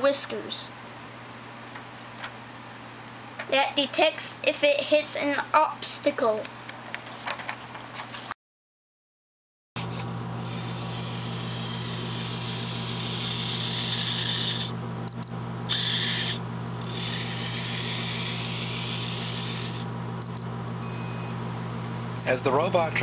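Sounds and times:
robot servos whirring: 10.5 - 14.7, 15.7 - 19.8
short high-pitched beeps: 15.1 - 15.3, 20.2 - 23.0.

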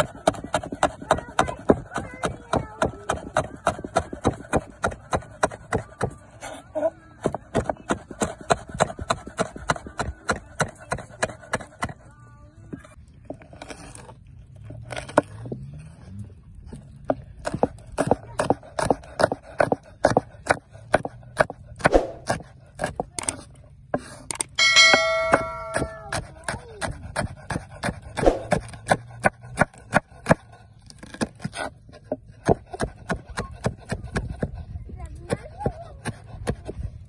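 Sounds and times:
knife chopping on wooden board: 0.2 - 6.1.

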